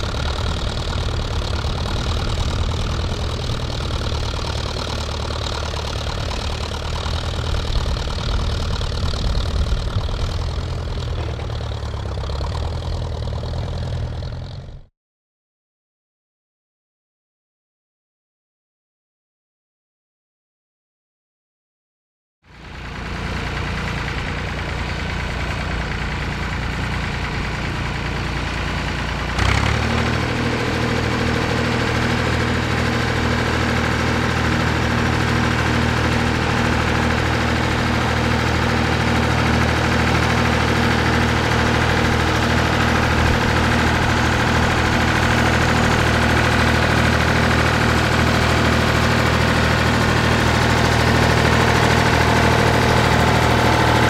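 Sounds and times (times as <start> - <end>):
tractor engine running under load: 0.0 - 14.9, 22.5 - 54.0.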